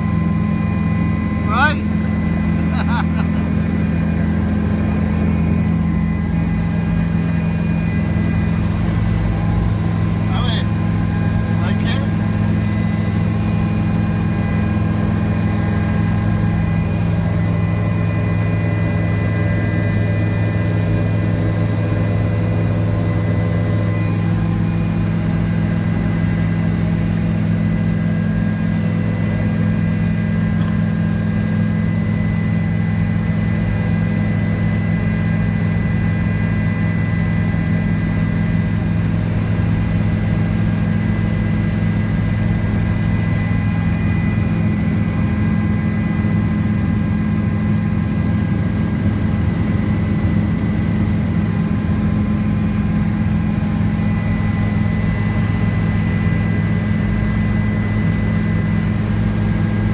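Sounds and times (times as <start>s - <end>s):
helicopter engine and rotors: 0.0s - 59.9s.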